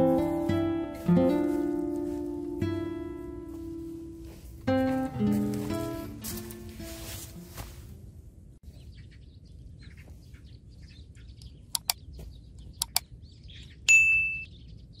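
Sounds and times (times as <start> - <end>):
faint bird chirping: 8.6 - 15.0
mouse-click sound effects: 11.7 - 12.0, 12.8 - 13.1
bright bell ding: 13.9 - 14.5.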